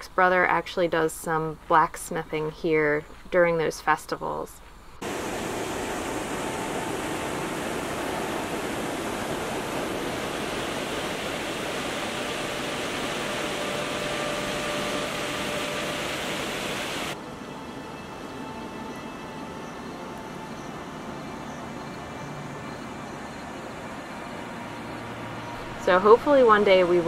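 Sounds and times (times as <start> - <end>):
water rushing over spillway: 5.0 - 17.2.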